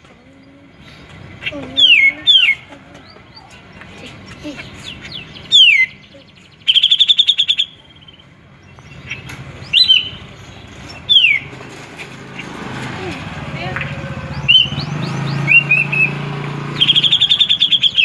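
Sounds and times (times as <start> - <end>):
bird singing: 0.0 - 18.0.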